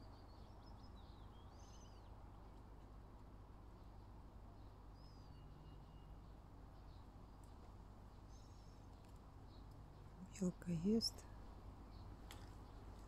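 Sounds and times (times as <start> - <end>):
faint bird chirps: 0.0 - 2.1, 3.8 - 7.1, 8.2 - 12.8
low steady hum: 0.0 - 13.0.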